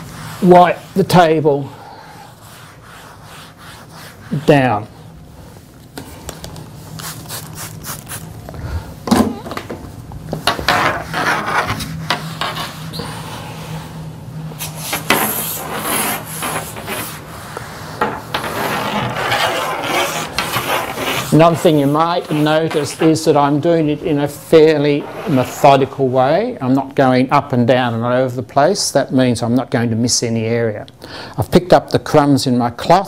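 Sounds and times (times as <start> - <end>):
cloth wiping a table: 0.0 - 1.5, 2.2 - 6.2.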